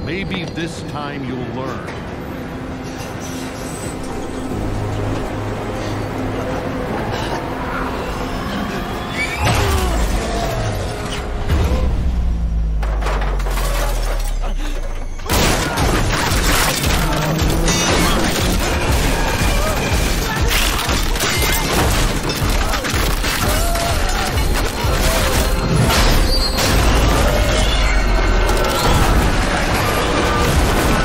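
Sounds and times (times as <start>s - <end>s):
dramatic music: 0.1s - 31.0s
loud crash and shattering: 12.8s - 31.0s.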